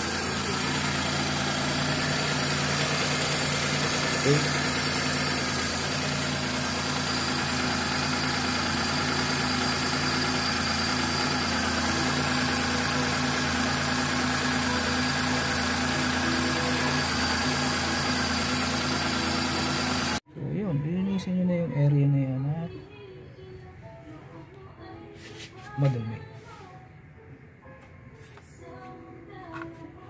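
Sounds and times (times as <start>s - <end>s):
car engine idling: 0.0s - 20.2s.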